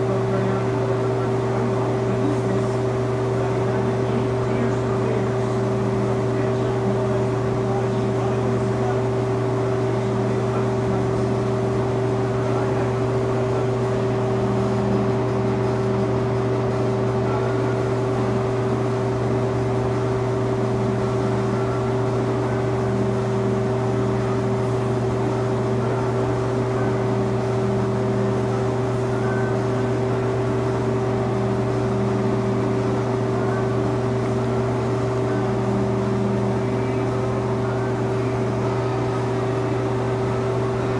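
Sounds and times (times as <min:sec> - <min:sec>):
machinery hum: 0:00.0 - 0:40.9.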